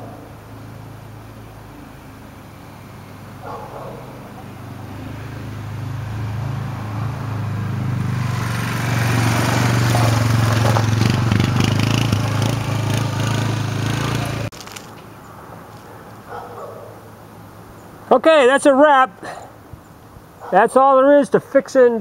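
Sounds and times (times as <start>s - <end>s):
quad engine running: 3.4s - 14.8s.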